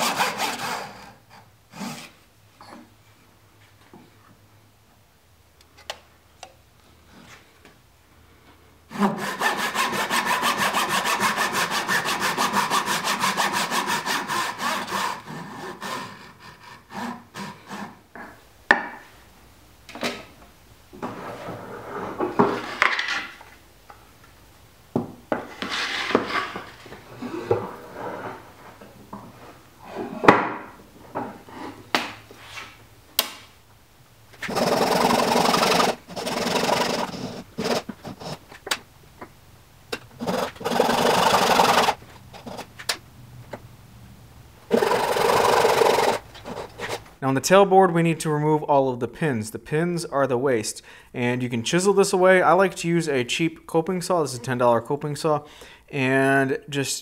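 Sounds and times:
hand saw cutting wood: 0:00.0 - 0:02.2, 0:08.9 - 0:18.1, 0:34.4 - 0:38.4, 0:40.2 - 0:42.7, 0:44.7 - 0:47.1.

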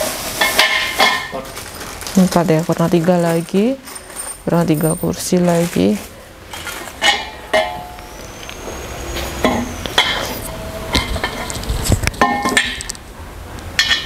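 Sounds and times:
metal tubes knocking and clinking: 0:07.0 - 0:08.0, 0:11.0 - 0:13.0.

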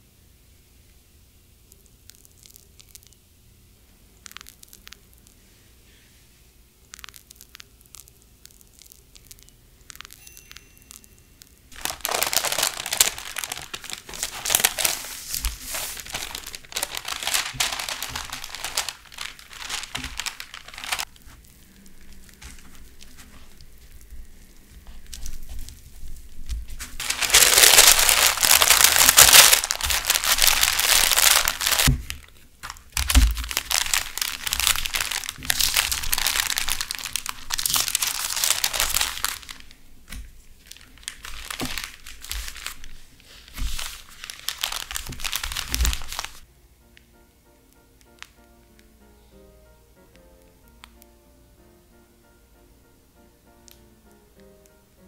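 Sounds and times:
parchment paper crinkling: 0:11.7 - 0:46.4.

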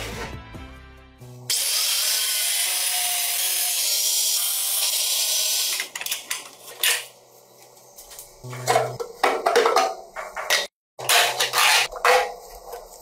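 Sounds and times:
angle grinder cutting steel: 0:01.5 - 0:06.0.

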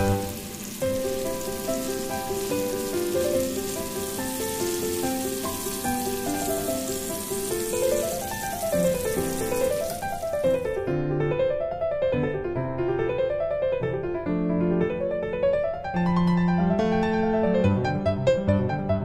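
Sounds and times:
fish sizzling in oil: 0:00.0 - 0:10.8
piano music: 0:00.0 - 0:19.0.

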